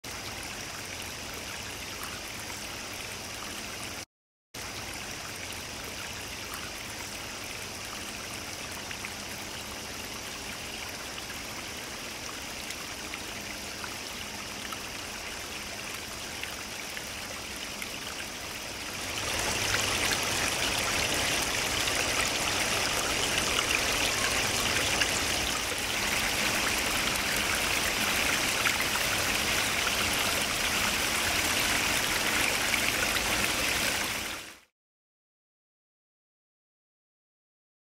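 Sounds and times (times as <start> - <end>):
waterfall splashing into pool: 18.9 - 34.7.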